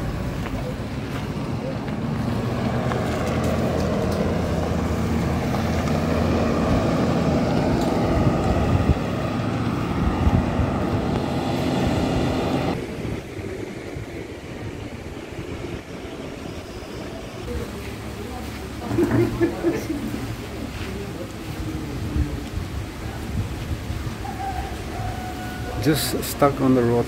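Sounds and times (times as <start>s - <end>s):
highway traffic passing: 0.0s - 27.0s.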